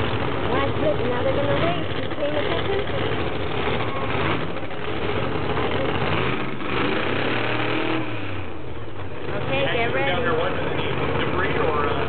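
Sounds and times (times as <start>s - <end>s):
race car engines roaring: 0.0s - 12.0s.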